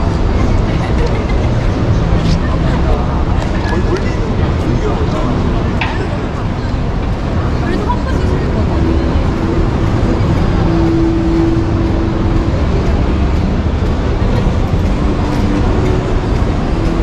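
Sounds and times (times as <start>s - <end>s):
loud rumbling noise: 0.0s - 17.0s.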